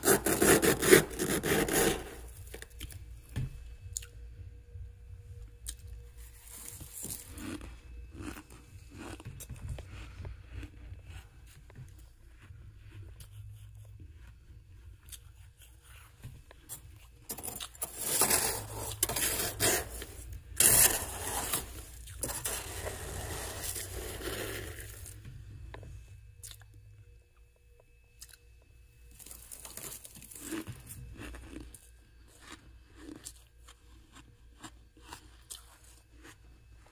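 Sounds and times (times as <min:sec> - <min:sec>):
tool scraping crunchy frost: 0:00.0 - 0:02.6, 0:17.3 - 0:25.2
low hum: 0:00.0 - 0:36.9.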